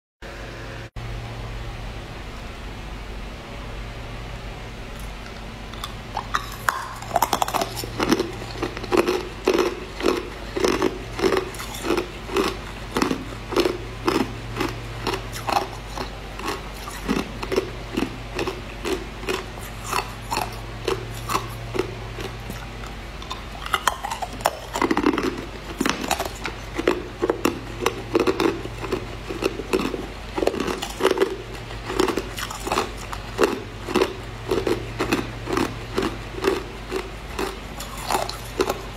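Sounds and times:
low hum: 0.2 - 38.9
ice cubes crunching: 5.7 - 38.9.

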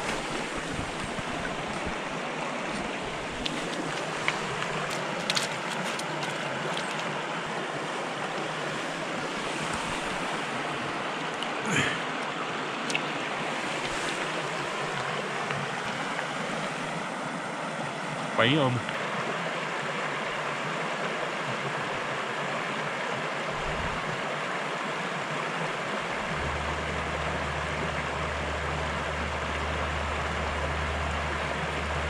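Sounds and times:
stream water running over riffles: 0.0 - 32.0.

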